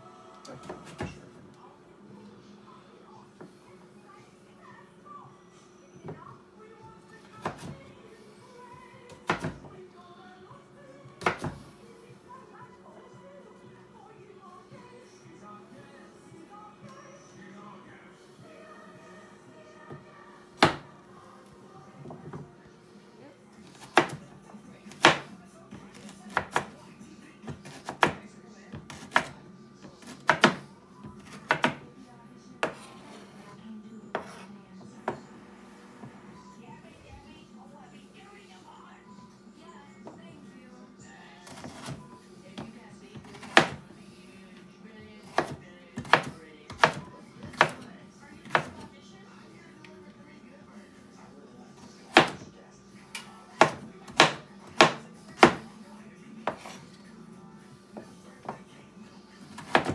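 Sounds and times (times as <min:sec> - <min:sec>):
faint music: 0:00.0 - 0:59.9
knife chopping on wooden board: 0:09.2 - 0:09.6, 0:11.2 - 0:11.6, 0:20.6 - 0:20.9, 0:23.8 - 0:24.2, 0:24.9 - 0:25.3, 0:28.8 - 0:29.4, 0:30.0 - 0:30.6, 0:31.2 - 0:31.8, 0:34.1 - 0:34.5, 0:42.6 - 0:43.8, 0:45.2 - 0:48.8, 0:52.1 - 0:52.4, 0:53.6 - 0:55.6, 0:56.4 - 0:56.8, 0:59.5 - 0:59.9.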